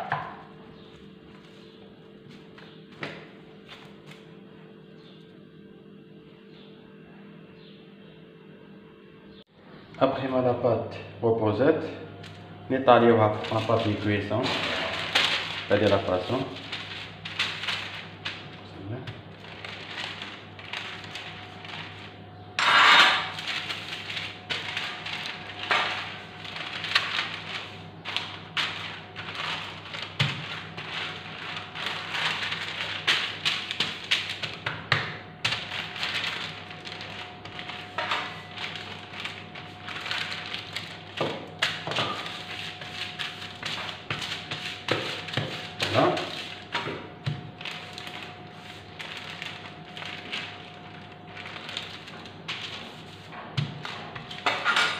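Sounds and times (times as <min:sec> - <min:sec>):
baking paper crinkling: 0:12.2 - 0:54.9.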